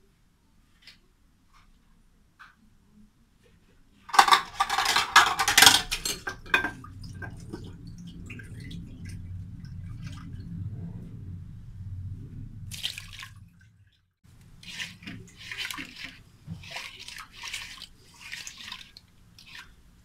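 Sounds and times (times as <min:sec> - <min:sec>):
hand swishing water in a pot: 0:04.1 - 0:11.4, 0:12.7 - 0:20.0.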